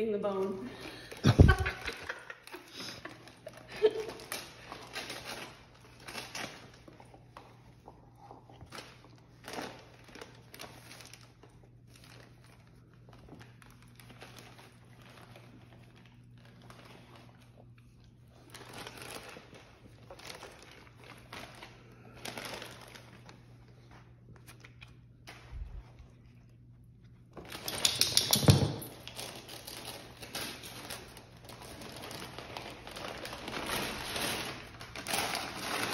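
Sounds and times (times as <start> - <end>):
faint low hum: 0.0 - 35.9
wrapping paper crinkling: 0.4 - 26.7, 29.0 - 35.9.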